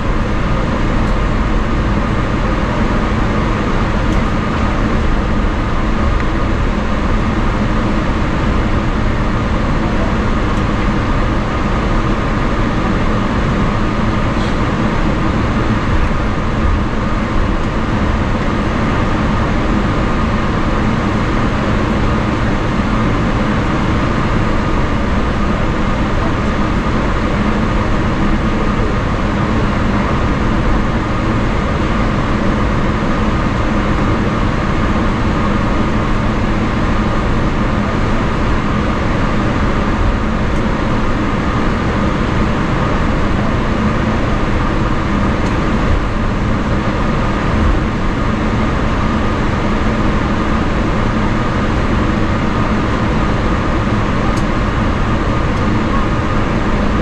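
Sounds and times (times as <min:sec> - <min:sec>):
aircraft rolling rumble: 0:00.0 - 0:57.0
jet engines humming and whining: 0:00.0 - 0:57.0.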